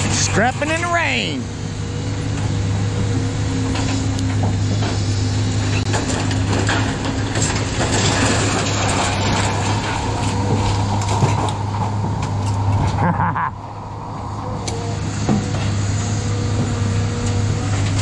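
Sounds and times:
engine drone: 0.0 - 18.0
scrap metal clanking and scraping: 3.6 - 13.0, 14.7 - 18.0.

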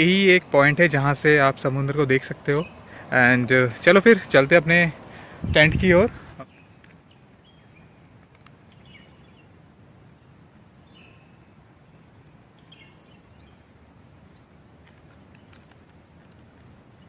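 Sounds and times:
bird chirps: 6.4 - 8.1, 8.7 - 9.5, 10.2 - 13.6.

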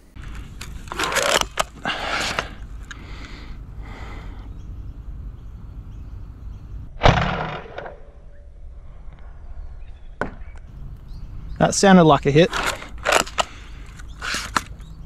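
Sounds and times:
foam dart blaster firing crack: 7.0 - 8.1.

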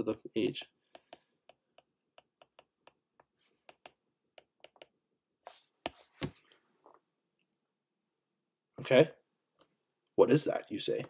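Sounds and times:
stylus tapping on glass screen: 0.9 - 5.0.

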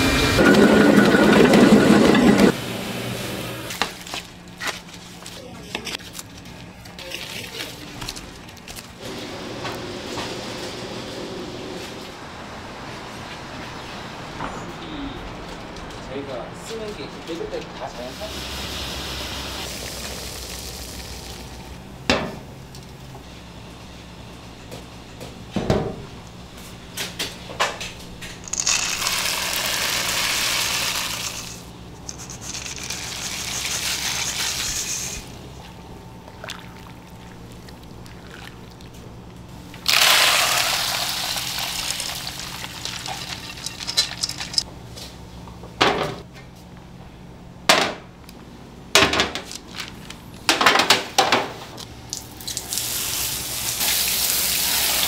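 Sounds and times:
kitchen machinery hum: 0.0 - 14.7, 15.4 - 55.0
hose spraying water: 18.0 - 21.6, 28.5 - 35.3, 39.8 - 44.3, 52.2 - 55.0
water running and pouring: 18.6 - 21.7, 39.9 - 44.6
metal bowls and pots clattering: 41.7 - 44.6.

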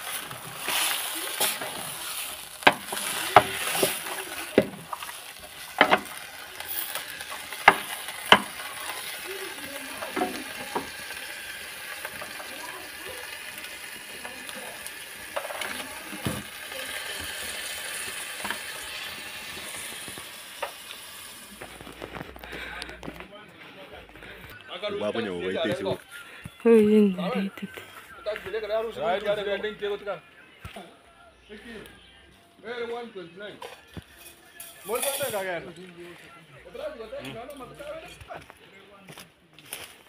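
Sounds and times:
pot sizzling: 0.0 - 22.9, 34.2 - 35.6
wooden spoon knocking metal pot: 2.6 - 5.1, 5.7 - 6.2, 7.5 - 8.7.

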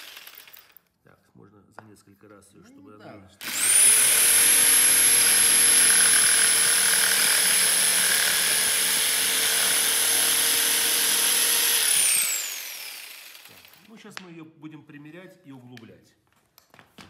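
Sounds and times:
electric jigsaw cutting plywood: 0.0 - 0.4, 3.4 - 13.9.

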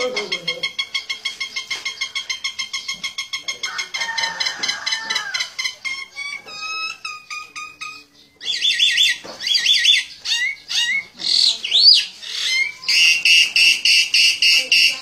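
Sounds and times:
myna calling shrilly: 8.5 - 15.0.

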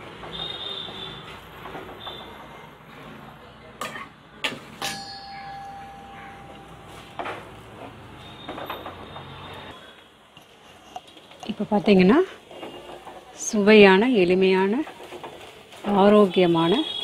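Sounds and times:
ringing tone: 4.9 - 7.2.

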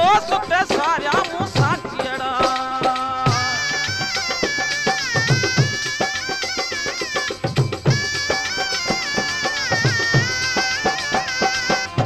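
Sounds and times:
quick drum beats: 0.0 - 12.0
bending folk melody: 3.3 - 12.0.

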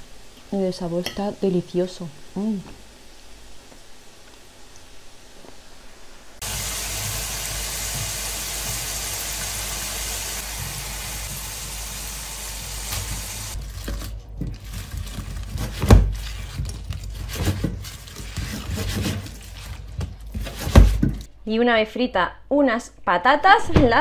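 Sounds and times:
oil sizzling in a pan: 0.0 - 13.6.

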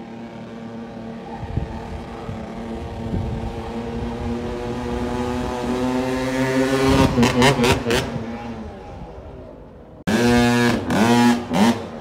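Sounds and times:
two-stroke motocross bike engine: 10.1 - 12.0.

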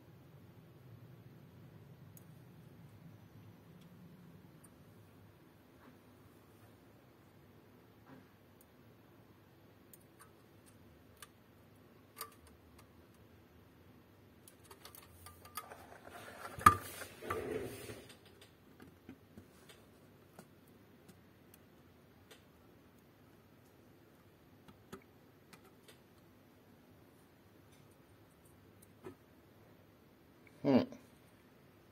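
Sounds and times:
rustling and scraping: 14.6 - 20.6.

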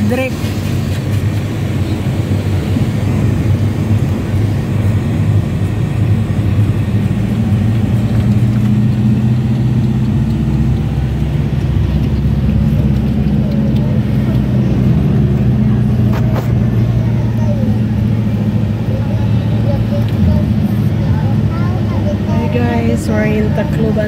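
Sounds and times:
van engine and road drone: 0.0 - 24.0.

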